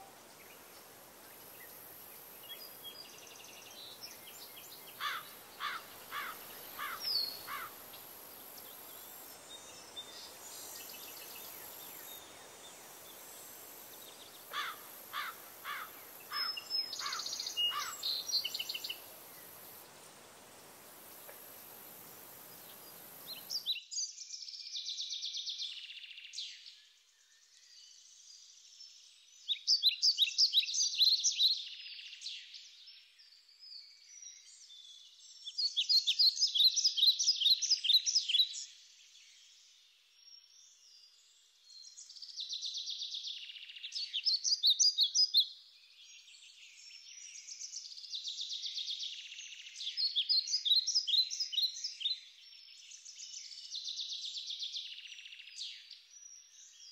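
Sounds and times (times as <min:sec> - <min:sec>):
songbird singing trills: 0:00.0 - 0:23.8.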